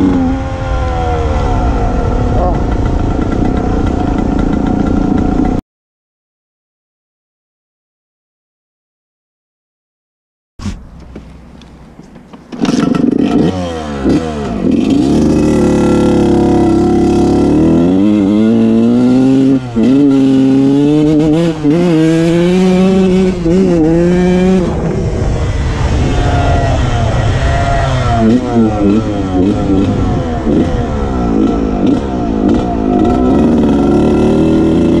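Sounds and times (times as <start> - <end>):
dirt bike engine revving: 0.0 - 5.6, 12.5 - 35.0
wind on microphone: 0.0 - 5.6, 16.3 - 35.0.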